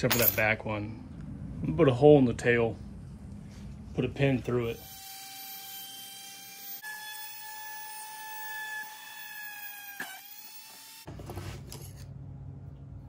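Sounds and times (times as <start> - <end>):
rotary tool drilling wood: 4.8 - 11.1
handling and rustling: 11.1 - 12.1.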